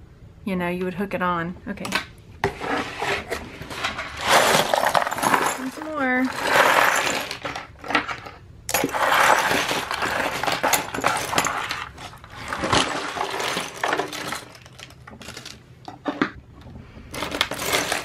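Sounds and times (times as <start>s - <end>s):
metal jewelry clinking on a table: 4.4s - 15.6s.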